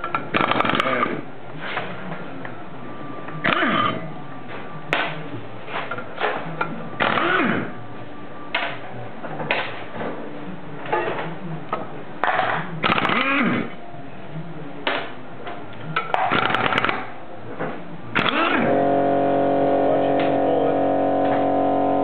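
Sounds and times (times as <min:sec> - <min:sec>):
electric impact driver hammering: 0:00.3 - 0:01.2, 0:07.0 - 0:07.7, 0:12.8 - 0:13.7, 0:16.2 - 0:17.0, 0:18.2 - 0:22.0.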